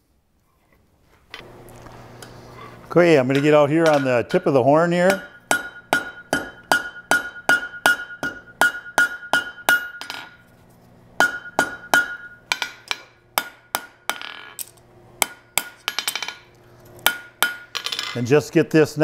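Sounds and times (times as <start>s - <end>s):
hammer striking steel on anvil: 3.2s - 10.4s, 11.2s - 14.4s, 15.2s - 18.2s.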